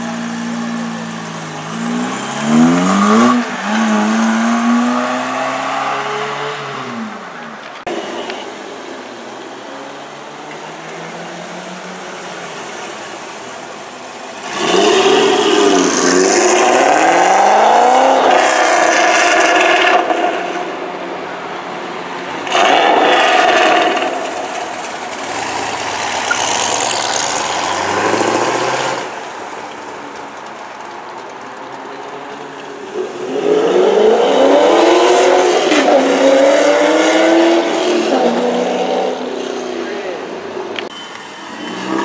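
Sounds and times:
car engine revving: 0.0 - 8.3, 14.3 - 20.9, 22.3 - 29.6, 32.9 - 39.9.

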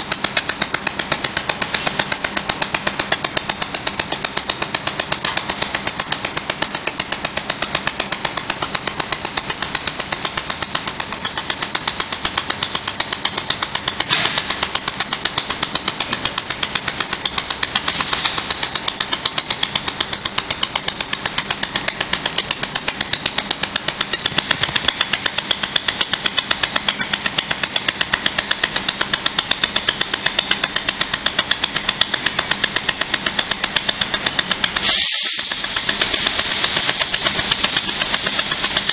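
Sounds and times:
laser welder pulses snapping: 0.0 - 38.9
steady hiss: 34.8 - 38.9.

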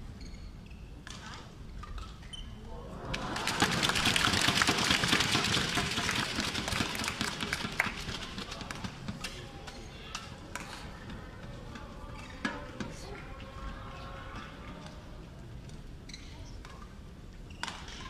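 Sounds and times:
crowd voices and clapping: 2.7 - 15.9.

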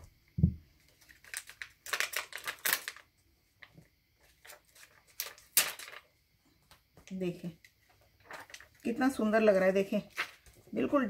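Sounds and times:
dull thump: 0.4 - 0.6
plastic sticker sheet crinkling: 0.9 - 3.1, 4.2 - 6.1.

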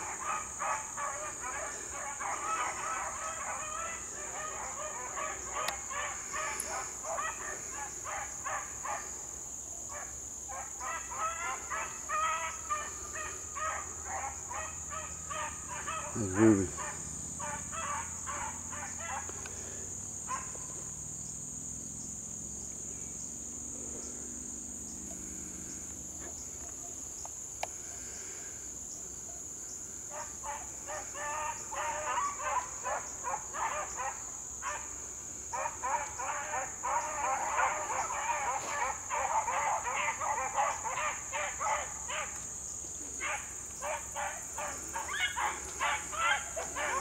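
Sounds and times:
dogs baying: 0.0 - 9.2, 9.9 - 20.9, 30.1 - 47.0
high insect trill: 0.0 - 47.0.

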